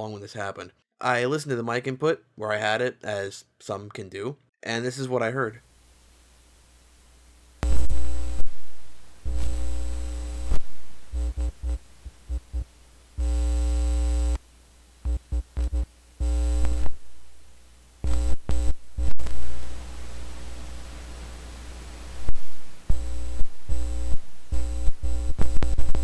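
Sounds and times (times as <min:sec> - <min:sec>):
electrical hum and buzz: 0:05.6 - 0:26.0.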